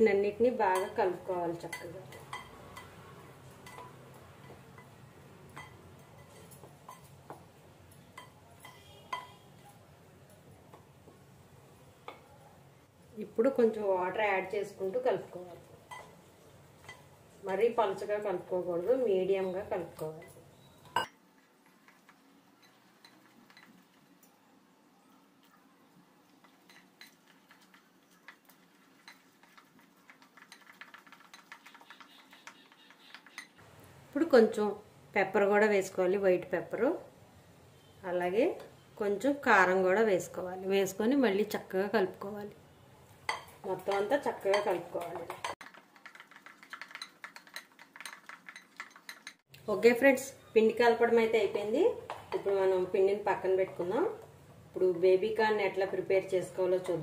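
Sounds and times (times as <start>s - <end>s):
spatula clinking on glass bowl: 3.6s - 7.1s, 8.0s - 9.7s, 46.8s - 49.4s
spatula stirring dry mixture: 26.2s - 33.6s, 43.3s - 49.5s.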